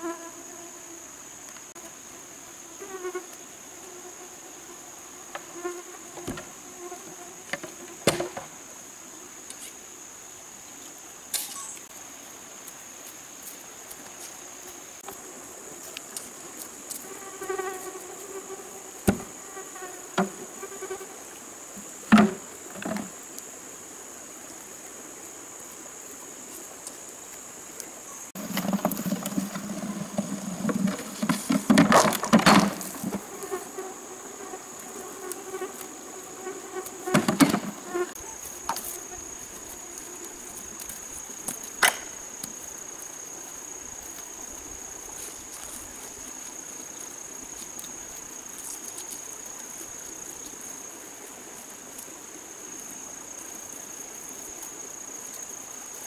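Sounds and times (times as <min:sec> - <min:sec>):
bamboo clattering: 0:22.1 - 0:23.1, 0:28.4 - 0:33.3, 0:37.1 - 0:37.8
bamboo poles knocking: 0:22.1 - 0:23.1.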